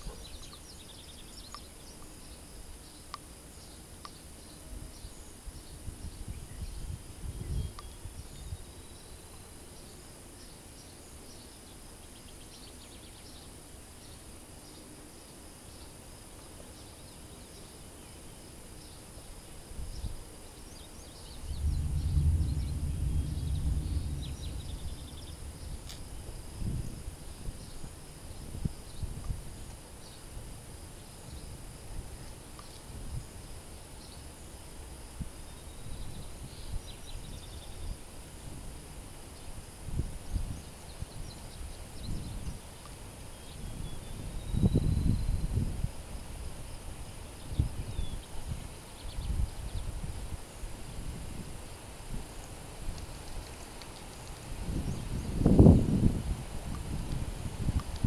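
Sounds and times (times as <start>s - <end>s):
birds chirping: 0.0s - 30.3s
insect calls: 0.0s - 58.0s
wind hitting microphone: 5.6s - 8.7s, 21.4s - 29.7s, 39.6s - 42.6s, 43.5s - 46.6s, 47.5s - 58.0s.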